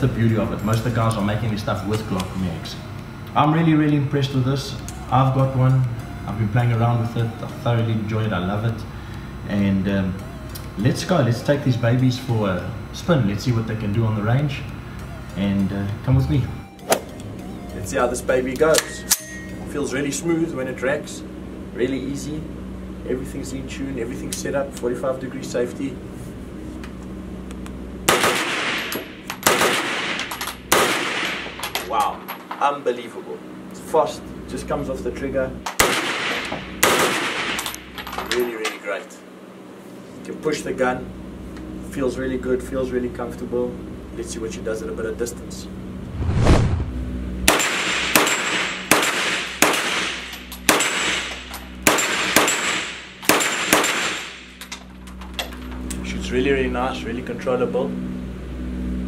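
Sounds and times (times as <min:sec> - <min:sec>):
high metallic rings: 0:18.8 - 0:19.8
rapid gunshots ringing in room: 0:28.1 - 0:31.5, 0:35.8 - 0:37.6, 0:47.5 - 0:54.5
low rumble: 0:45.9 - 0:47.4.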